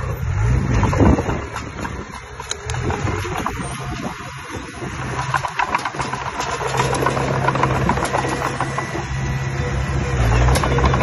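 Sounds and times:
bulldozer diesel engine under load: 0:00.0 - 0:11.0
steel tracks clicking and clanking: 0:00.8 - 0:11.0.

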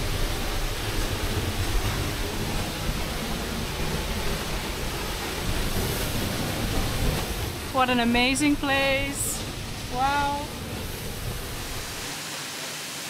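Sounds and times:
waterfall rushing with deep rumble: 0:00.0 - 0:13.0.

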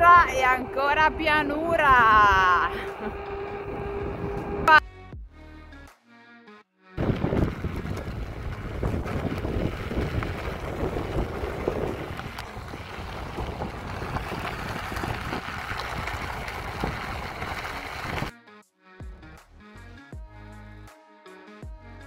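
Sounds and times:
wheels crackling on gravel: 0:00.0 - 0:04.6, 0:07.0 - 0:18.3
wind buffeting microphone: 0:00.0 - 0:04.7, 0:07.0 - 0:18.3.

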